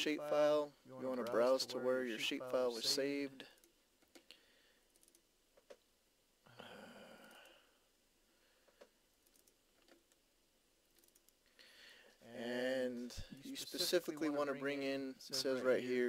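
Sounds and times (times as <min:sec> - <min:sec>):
soft breath: 0:04.2 - 0:04.9, 0:06.4 - 0:09.0, 0:11.5 - 0:12.3
faint mouse clicks: 0:07.2 - 0:07.6.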